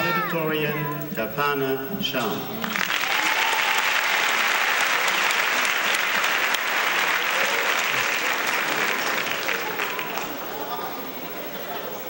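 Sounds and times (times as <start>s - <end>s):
audience applauding: 2.6s - 11.2s.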